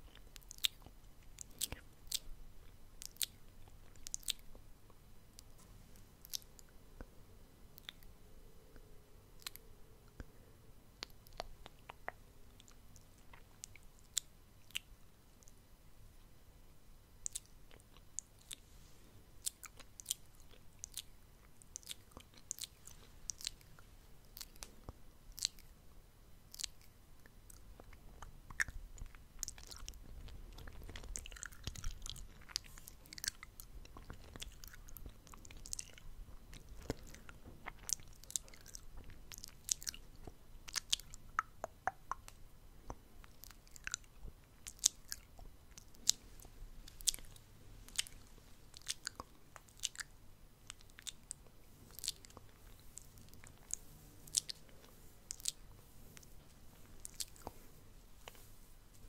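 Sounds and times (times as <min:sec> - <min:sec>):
wet mouth clicks and smacks: 0:00.1 - 0:02.3, 0:03.0 - 0:04.6, 0:17.2 - 0:18.6, 0:19.4 - 0:25.7, 0:26.5 - 0:55.7.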